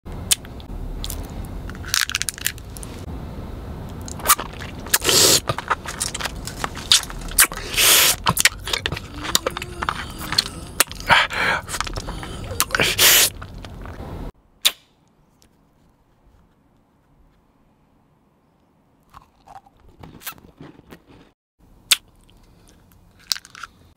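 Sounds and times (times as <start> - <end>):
candy being bitten and chewed: 0.3 - 2.9, 4.0 - 14.0, 19.0 - 23.9.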